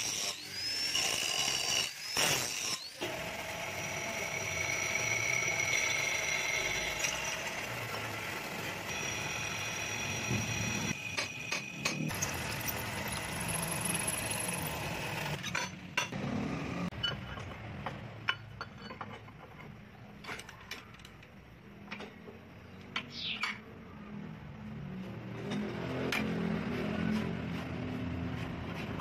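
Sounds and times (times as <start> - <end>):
drill press running: 3.0 - 15.4.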